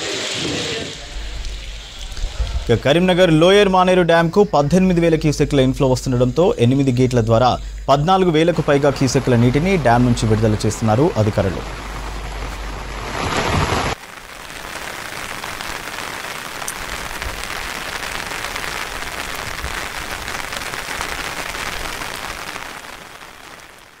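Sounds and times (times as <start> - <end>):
rushing water hiss: 0.0 - 24.0.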